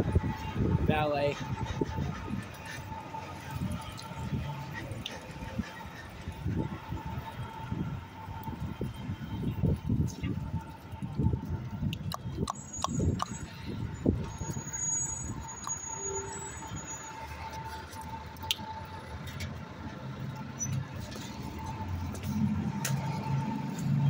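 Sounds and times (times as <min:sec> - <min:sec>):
street traffic: 0:00.0 - 0:24.0.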